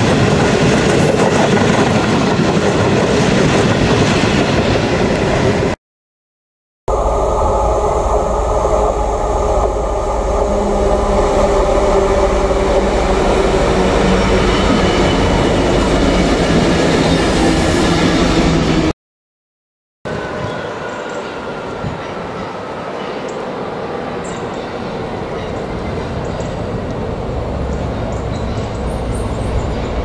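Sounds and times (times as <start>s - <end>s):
rail noise: 0.0s - 5.8s, 6.9s - 18.9s, 20.1s - 30.0s
diesel locomotive engines throbbing: 6.9s - 18.9s, 20.1s - 30.0s.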